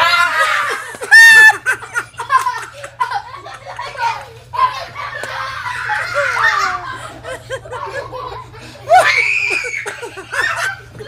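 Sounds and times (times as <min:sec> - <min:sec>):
people laughing: 0:00.0 - 0:11.0.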